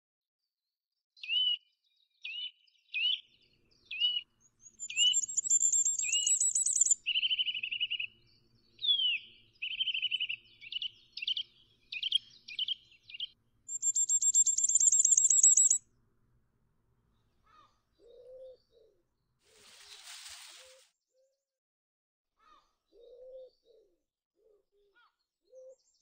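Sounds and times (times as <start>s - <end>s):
songbirds chirping: 1.2s - 20.8s
high bird trills: 4.0s - 8.2s, 13.7s - 15.8s.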